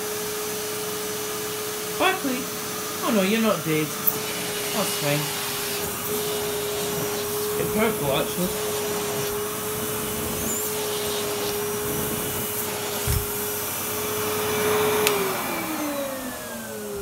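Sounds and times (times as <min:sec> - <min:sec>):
vacuum cleaner running: 0:00.0 - 0:17.0.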